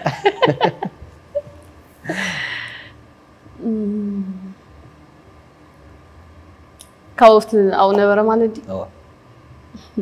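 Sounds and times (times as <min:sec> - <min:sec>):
breathy exclamation: 0:02.1 - 0:02.9
person humming: 0:03.6 - 0:04.6.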